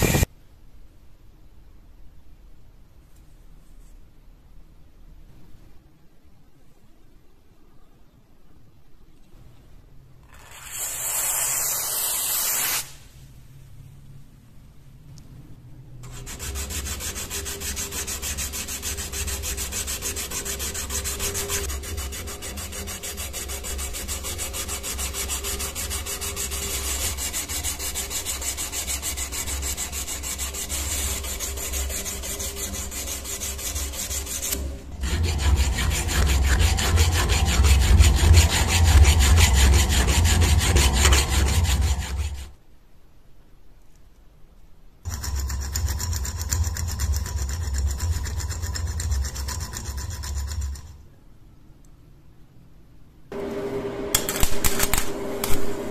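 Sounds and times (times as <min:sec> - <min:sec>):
abrasive paper rubbing metal: 0:00.0 - 0:00.3, 0:16.1 - 0:42.5, 0:45.1 - 0:51.0, 0:54.2 - 0:55.9
metal file rasping on blade: 0:16.1 - 0:42.5, 0:45.1 - 0:51.0.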